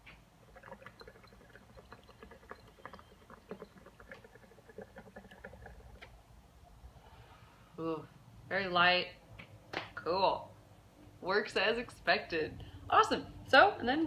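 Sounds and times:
water bubbling and gurgling: 0.0 - 6.8.

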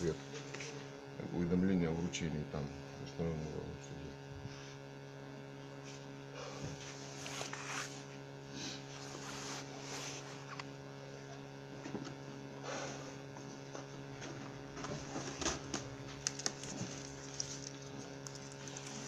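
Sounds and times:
low electrical hum: 0.0 - 19.0
rustles and scuffs: 9.0 - 10.5.

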